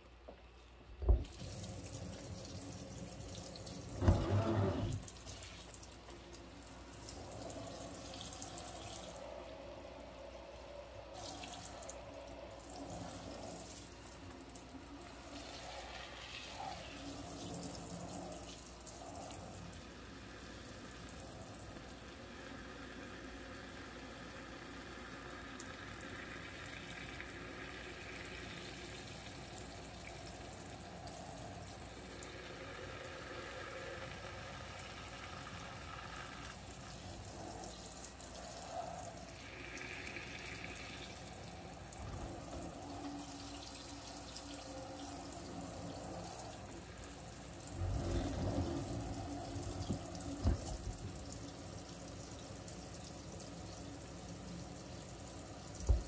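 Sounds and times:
tap water running into sink: 1.0 - 9.3, 34.3 - 56.0.

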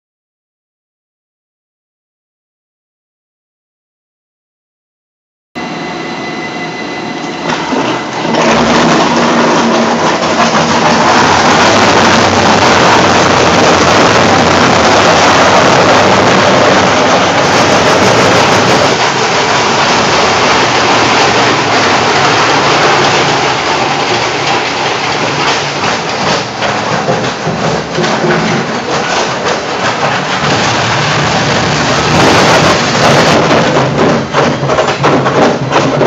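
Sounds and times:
machine hum: 5.6 - 36.0
shredder crunching and grinding: 7.8 - 34.6.

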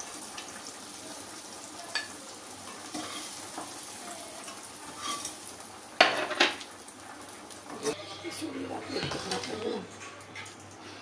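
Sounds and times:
onions sizzling in hot oil: 0.0 - 8.0.

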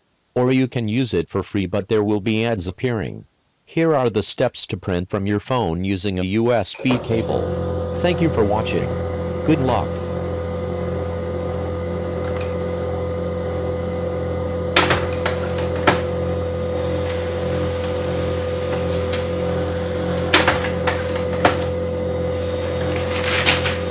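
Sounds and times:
printer motor hum: 6.8 - 23.9
paper feed clicks and clacks: 22.9 - 23.9.

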